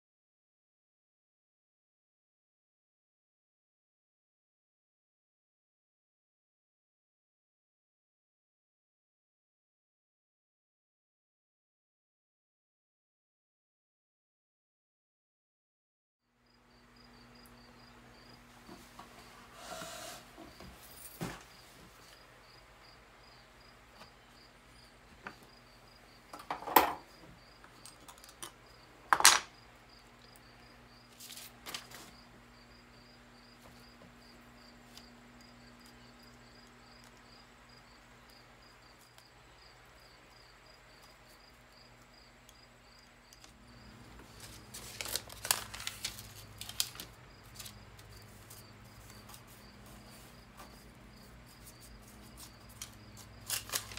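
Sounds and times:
rustling and scraping: 18.6 - 22.2, 31.1 - 32.2, 44.1 - 53.9.

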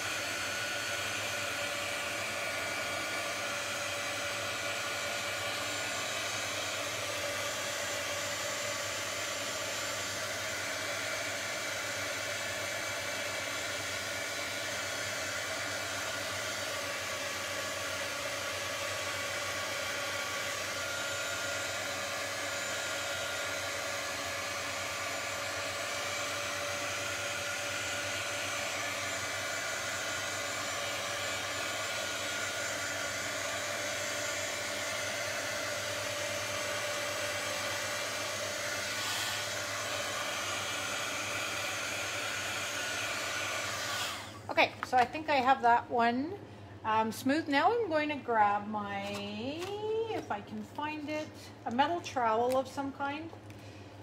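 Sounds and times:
heat gun blowing air: 0.0 - 45.5.

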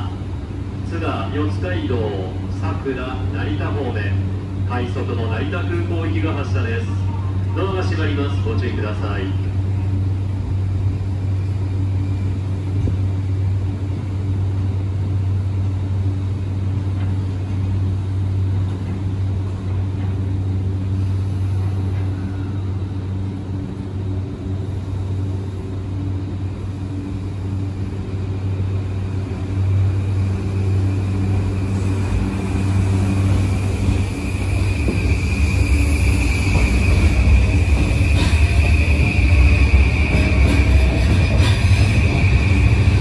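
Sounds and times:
electric train humming: 0.0 - 43.0
train motors whining: 9.5 - 43.0.

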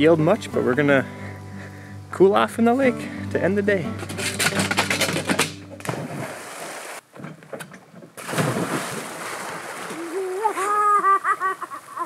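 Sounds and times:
guitar music: 0.0 - 5.9
person jumping into water splash: 5.8 - 7.0, 8.2 - 10.9
swimming water splashes: 5.8 - 7.0, 8.2 - 12.0.

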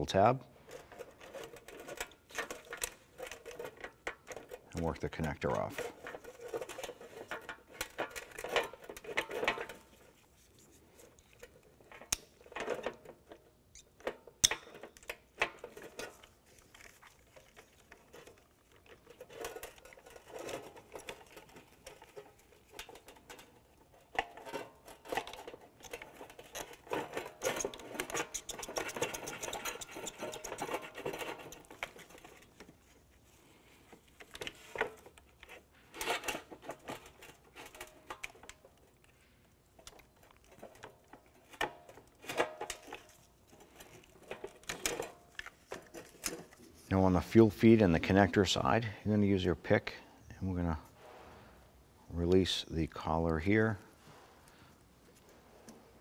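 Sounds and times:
rubbing and rattling: 0.6 - 48.8
plastic connector clicks and scratching: 14.9 - 32.8.

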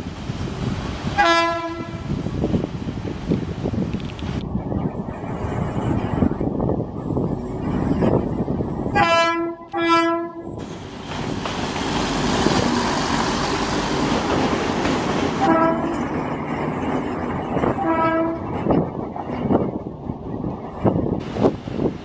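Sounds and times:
railcar rumbling and clattering past: 0.0 - 22.0
train horn blasts: 1.2 - 2.1, 8.9 - 10.6, 15.4 - 16.0, 17.8 - 18.5.

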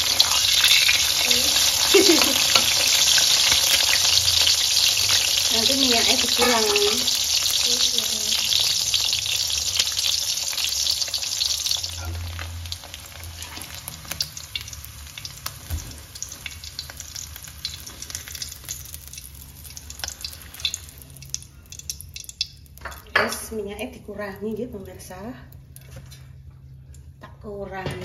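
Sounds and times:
metal spatula scraping a wok: 0.0 - 1.3
egg sizzling in hot oil: 0.0 - 23.4.

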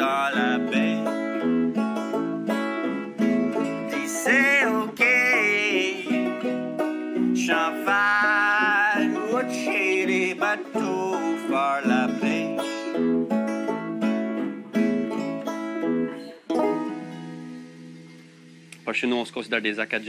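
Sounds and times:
man singing: 0.0 - 1.5, 3.8 - 6.6, 7.3 - 13.0
banjo picking: 0.0 - 20.0
guitars playing: 0.0 - 20.0.

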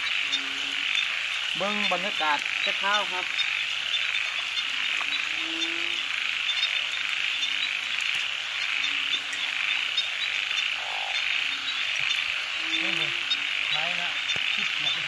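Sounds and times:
frogs trilling: 0.0 - 15.0
low frog calls: 0.0 - 15.0.

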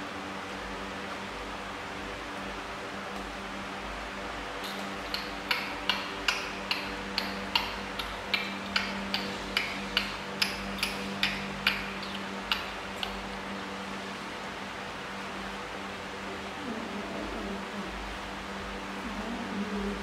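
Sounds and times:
steady low hum: 0.0 - 20.0
monkeys sucking bottle teats: 4.6 - 13.3.

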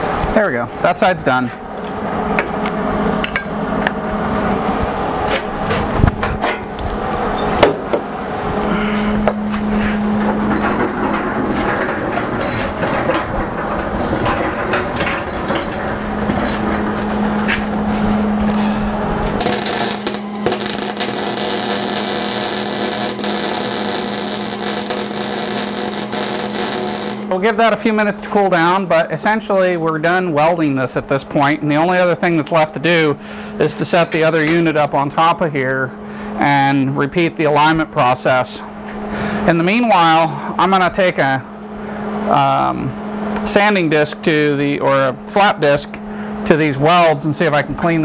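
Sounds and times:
steady low hum: 0.0 - 48.0
metal clanks and knocks: 9.2 - 18.7
welder arc crackling: 19.1 - 27.6.

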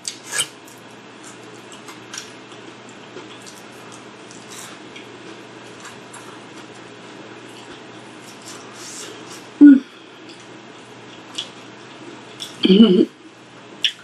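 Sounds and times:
low room hum: 0.0 - 14.0
wet chewing and mouth clicks: 1.2 - 6.7, 11.1 - 12.6.

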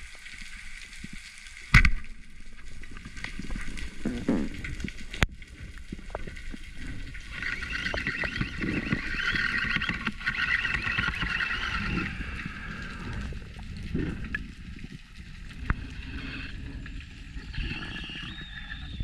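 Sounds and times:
muffled underwater rumble: 0.0 - 19.0
wavering high whine: 7.3 - 13.4.

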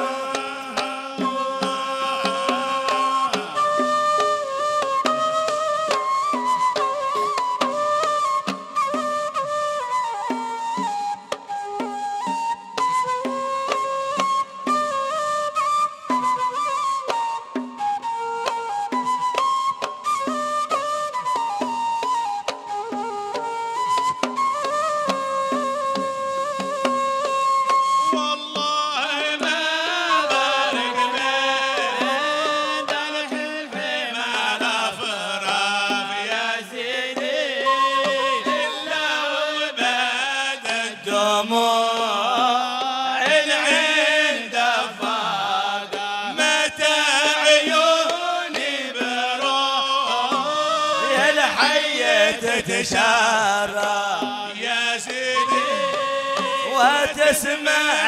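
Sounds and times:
men singing in chanting style: 0.0 - 3.8, 28.3 - 58.0
hand drum: 0.0 - 58.0.

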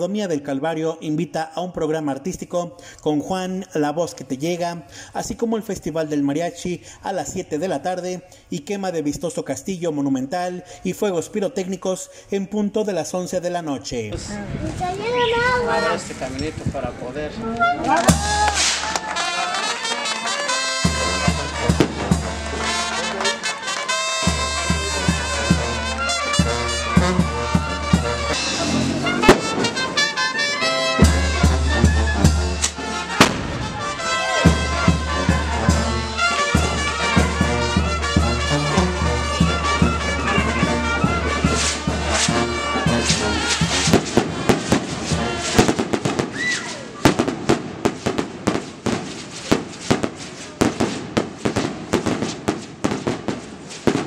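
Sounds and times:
brass band playing: 17.5 - 54.0
firecrackers banging: 17.9 - 54.0
tuba bass line: 20.5 - 23.4, 24.0 - 45.7.

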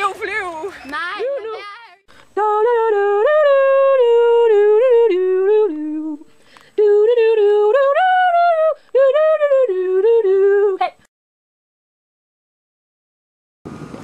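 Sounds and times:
person humming a melody: 2.4 - 11.1.

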